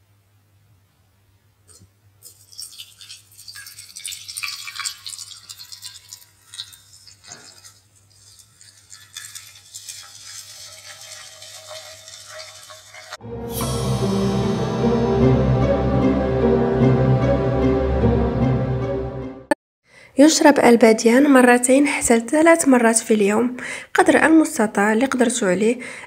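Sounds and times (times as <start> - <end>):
water pouring into teapot: 2.3 - 13.2
music: 13.2 - 19.6.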